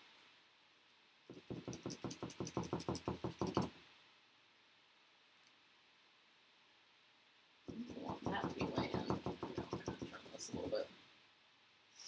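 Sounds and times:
paintbrush knocking on hard surface: 1.3 - 3.7, 7.7 - 10.8.

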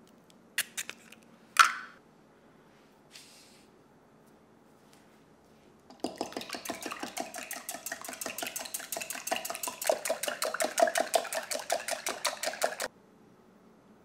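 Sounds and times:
whisk beating eggs in glass: 5.9 - 12.9.

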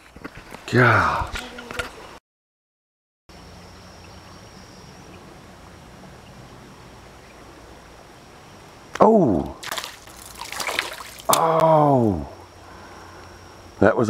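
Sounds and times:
creek hiss: 3.3 - 14.0.

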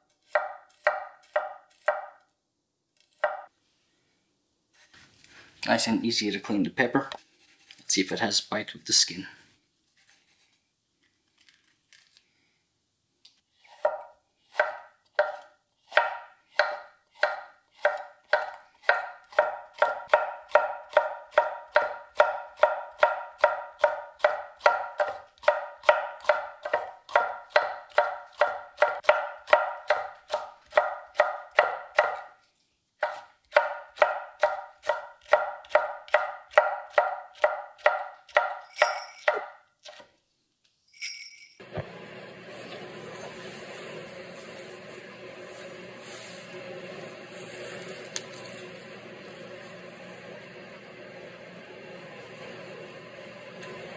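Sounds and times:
knife chopping on wooden board: 0.3 - 2.2, 3.2 - 3.5, 13.8 - 32.3, 33.0 - 38.6.

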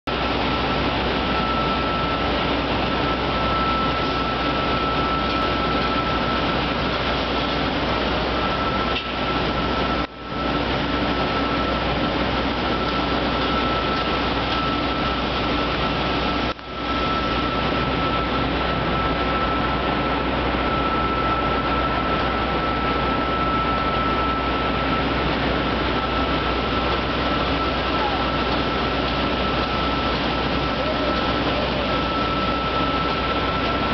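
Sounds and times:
construction site din: 0.1 - 33.9
thin high whine: 0.4 - 33.9.

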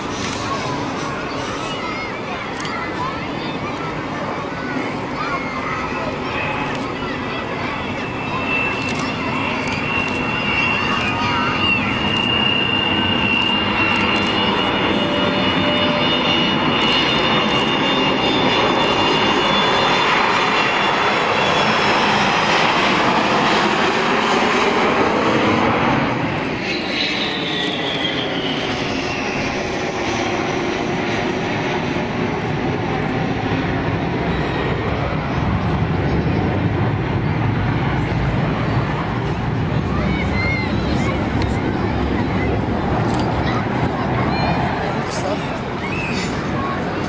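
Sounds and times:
high jet whine: 0.0 - 47.0
jet engines roaring overhead: 0.0 - 47.0.

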